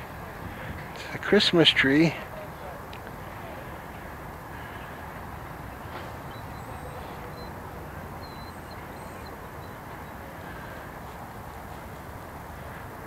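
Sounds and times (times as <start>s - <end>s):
low outdoor rumble: 0.0s - 13.0s
faint bird chirps: 5.8s - 10.9s.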